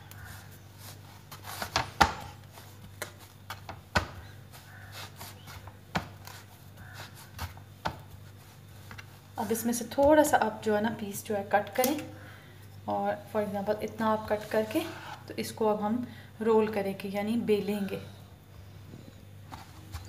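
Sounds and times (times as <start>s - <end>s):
hands rolling dough: 0.0s - 10.6s.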